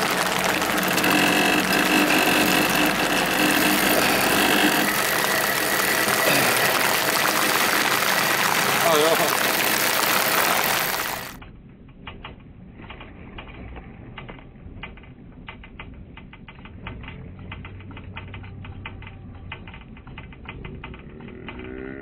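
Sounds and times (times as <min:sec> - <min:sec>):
heavy rain pouring: 0:00.0 - 0:11.4
rapid sharp clicks: 0:00.0 - 0:11.4, 0:14.8 - 0:22.0.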